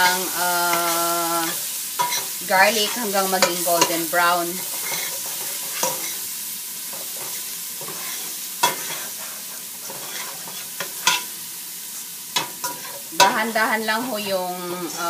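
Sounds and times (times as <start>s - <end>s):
garlic sizzling in hot oil: 0.0s - 15.0s
metal spoon scraping and clinking pot: 2.0s - 2.3s, 9.9s - 11.3s.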